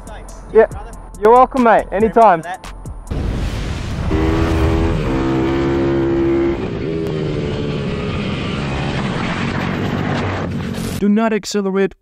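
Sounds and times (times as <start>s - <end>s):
motorcycle engine at high revs: 4.1s - 11.0s.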